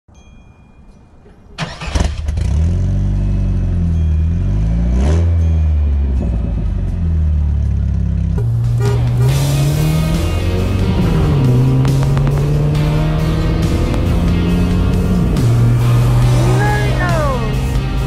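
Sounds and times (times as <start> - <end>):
pickup engine starting and idling: 1.6 - 3.2.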